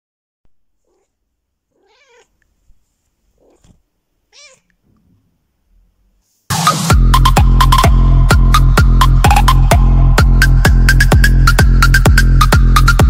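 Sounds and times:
cat meowing: 0.8 - 2.4, 3.4 - 4.8
electronic dance music: 6.5 - 13.0.

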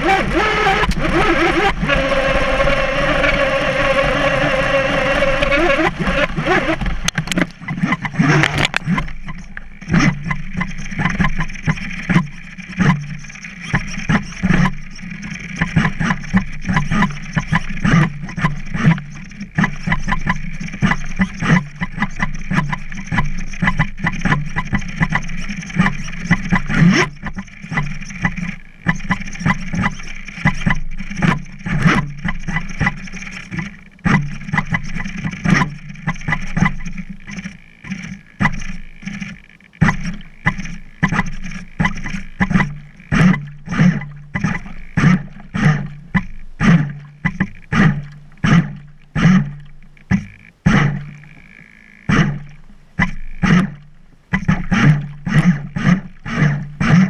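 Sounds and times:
steady low hum: 0.0 - 57.0
water knocking against boat hull: 15.5 - 51.5.

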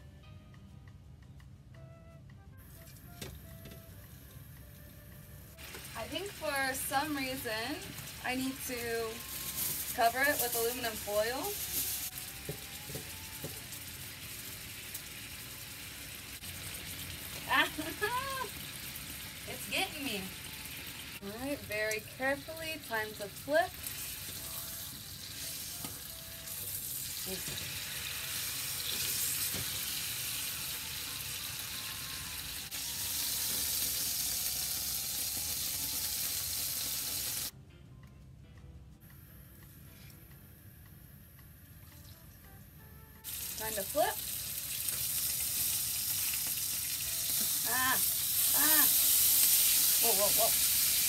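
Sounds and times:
steak sizzling in a frying pan: 5.6 - 37.5, 43.3 - 51.0.

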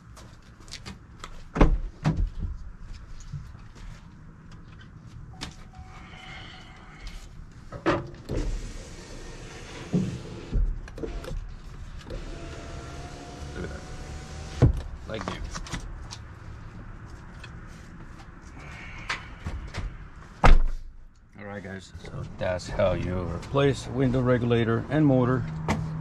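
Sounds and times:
power window motor running: 8.3 - 11.4, 12.0 - 14.8.

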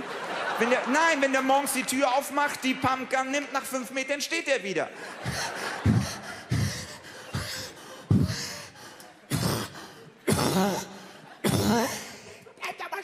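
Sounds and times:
man panting heavily: 5.0 - 12.4.

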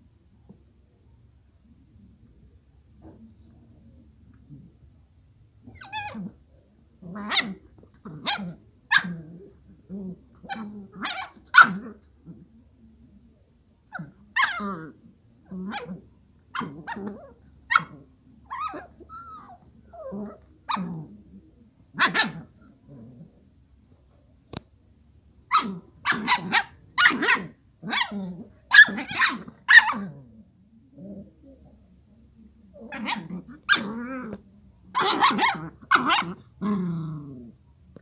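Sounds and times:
puppies growling: 16.6 - 21.4, 22.1 - 23.4, 32.7 - 34.4, 35.0 - 37.6.

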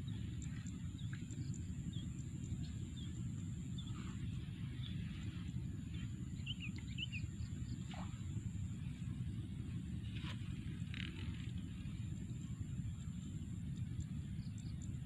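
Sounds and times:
small birds chirping: 0.0 - 8.1
steady low rumble: 0.0 - 15.0.

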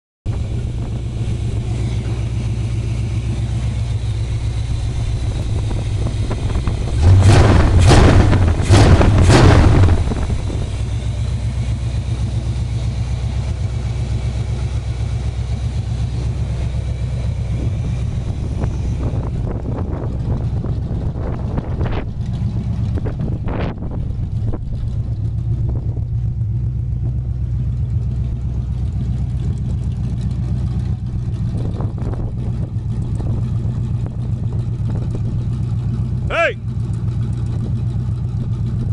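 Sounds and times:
engine revving: 0.3 - 11.4
truck engine idling: 0.3 - 38.9.

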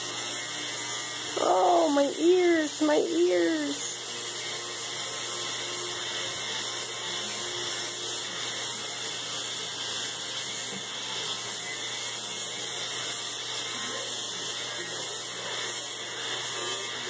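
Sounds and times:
electric shaver buzzing: 0.0 - 17.0.

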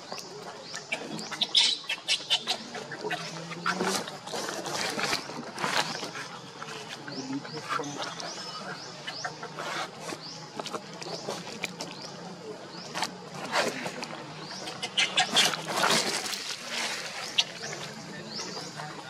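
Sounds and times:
macaques squealing: 1.2 - 3.6, 14.5 - 15.7.

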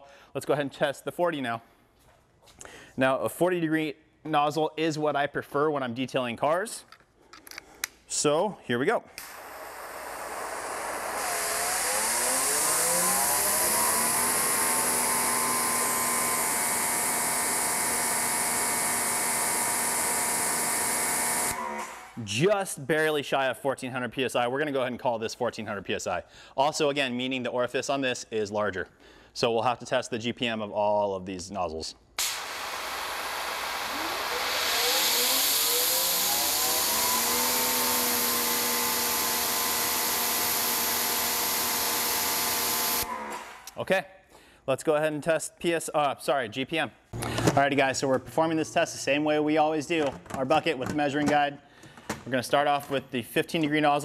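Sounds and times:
pressure washer motor running: 9.3 - 22.0, 32.2 - 43.5.

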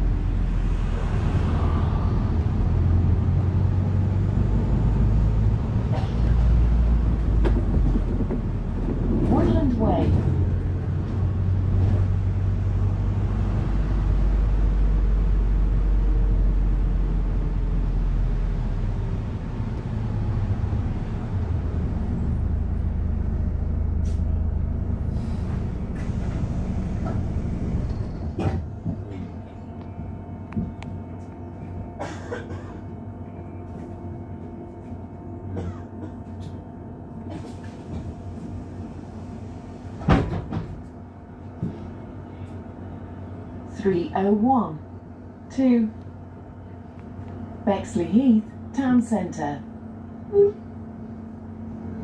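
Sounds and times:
bus engine drone: 0.0 - 52.0.

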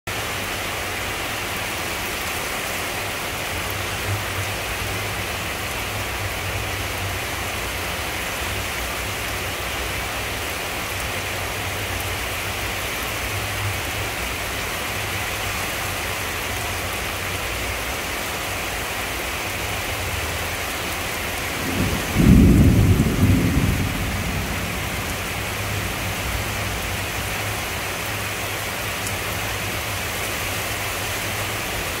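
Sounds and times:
heavy rain falling: 0.1 - 32.0
deep thunder clap: 21.6 - 26.9.

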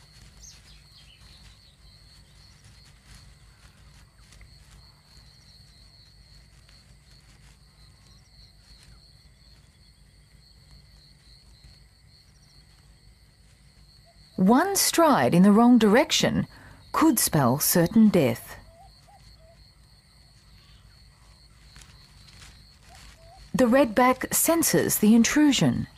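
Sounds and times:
high-pitched insect trill: 18.6 - 25.2.

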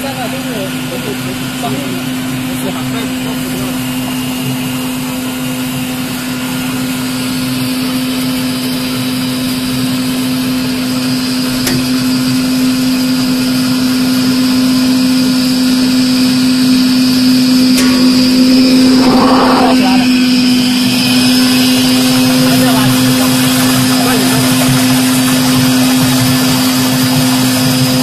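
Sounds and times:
faint high whine: 17.6 - 20.6.

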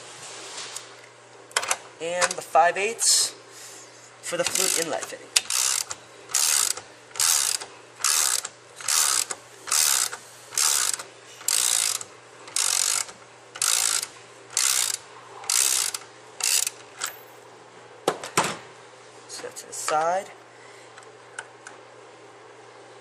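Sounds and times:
socket ratchet clicking: 4.4 - 17.2.

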